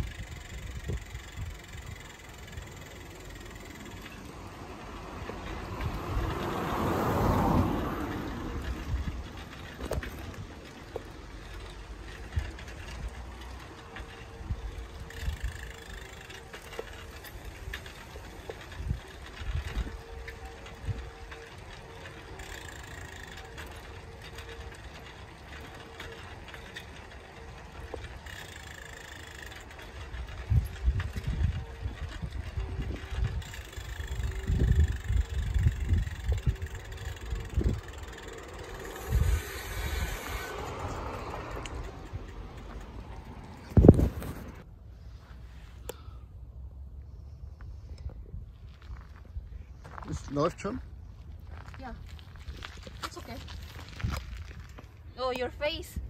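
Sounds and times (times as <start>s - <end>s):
wind rumbling on microphone: 0.0s - 2.8s, 4.0s - 21.8s, 29.8s - 44.7s, 47.1s - 50.1s, 50.9s - 55.1s
bicycle mechanical clicking: 0.0s - 44.7s, 49.6s - 56.0s
bicycle rolling on pavement: 0.0s - 56.0s
car passing by: 4.3s - 10.4s, 38.2s - 44.6s.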